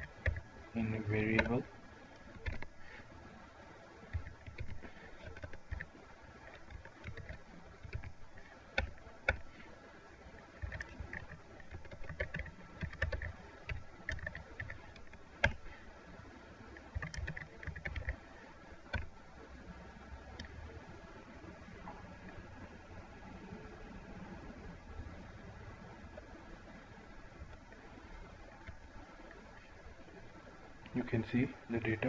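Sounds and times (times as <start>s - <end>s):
typing on computer keyboard: 0.0s - 0.5s, 2.2s - 2.7s, 4.1s - 9.5s, 10.5s - 15.7s, 16.8s - 18.2s, 18.9s - 19.1s.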